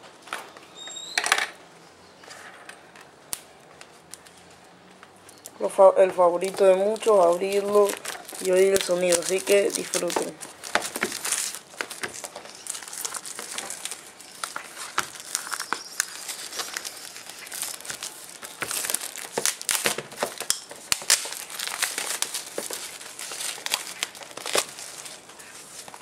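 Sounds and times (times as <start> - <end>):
plastic shrink-wrap crackling: 5.2 - 26.0.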